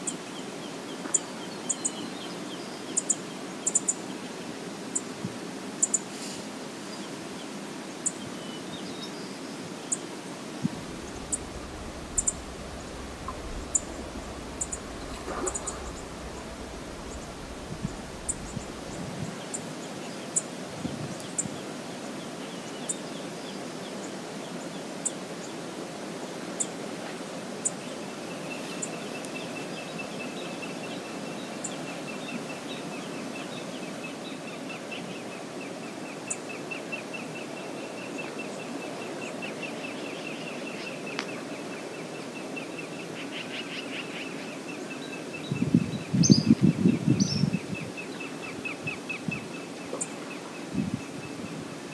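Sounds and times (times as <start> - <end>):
river water flowing: 9.7 - 20.6
rough burst of noise: 10.6 - 19.7
bird calling: 10.8 - 19.0
sharp high ticks: 11.0 - 19.0.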